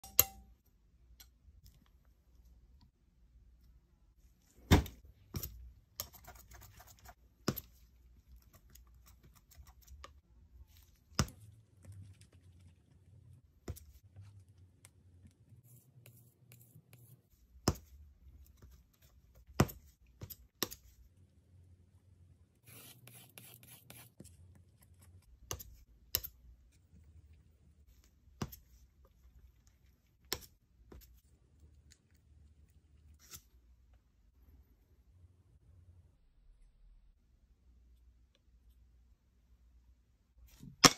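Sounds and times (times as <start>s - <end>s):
palette knife scraping paint: 22.6s - 26.3s.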